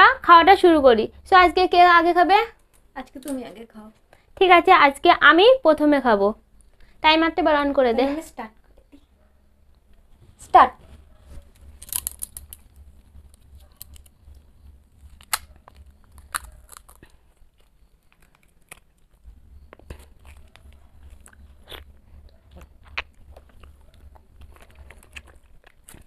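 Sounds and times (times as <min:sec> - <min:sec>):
low hum: 0:08.8 - 0:26.0
plastic cups crinkling: 0:11.4 - 0:26.0
soft eating mouth sounds: 0:12.3 - 0:26.0.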